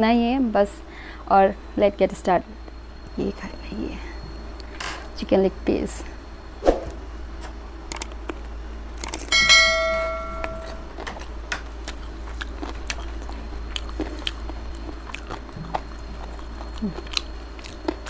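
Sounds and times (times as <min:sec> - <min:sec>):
metal dish struck and ringing: 0:09.3 - 0:10.9.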